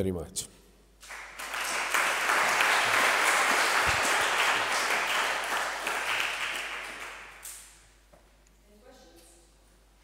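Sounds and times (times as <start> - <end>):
audience applauding: 1.0 - 7.8.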